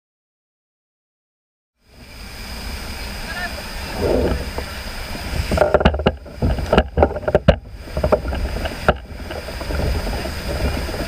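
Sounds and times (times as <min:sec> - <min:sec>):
steady low rumble: 0:01.9 - 0:11.0
knocks and clatter on a kayak: 0:05.4 - 0:11.0.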